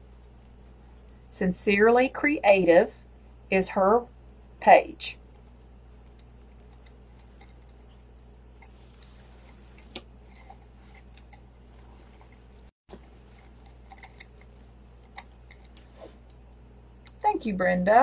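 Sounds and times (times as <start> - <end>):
steady low hum: 0.0 - 18.0
hands rustling ribbon: 8.6 - 16.3.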